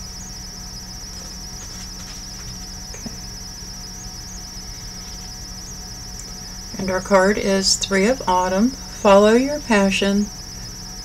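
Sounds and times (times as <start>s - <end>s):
high-pitched insect trilling: 0.0s - 11.0s
low steady hum: 0.0s - 11.0s.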